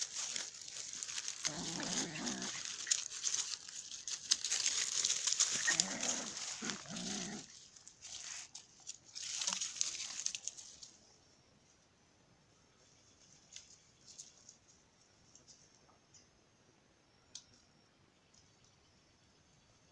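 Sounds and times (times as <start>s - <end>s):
scuffling in dry leaves: 0.0s - 11.0s
dogs growling: 0.7s - 3.0s, 5.4s - 7.6s.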